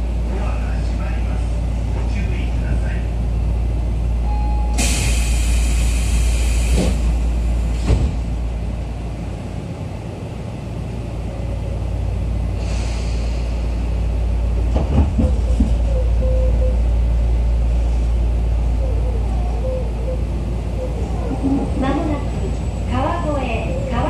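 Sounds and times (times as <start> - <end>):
train equipment humming: 0.0 - 24.0
clunks: 14.6 - 16.0.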